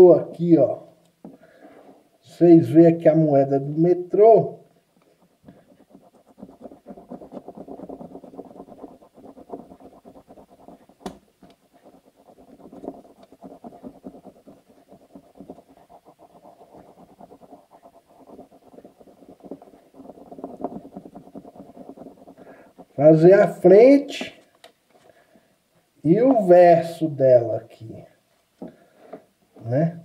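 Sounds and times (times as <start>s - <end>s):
pencil scribbling on paper: 3.5s - 24.5s.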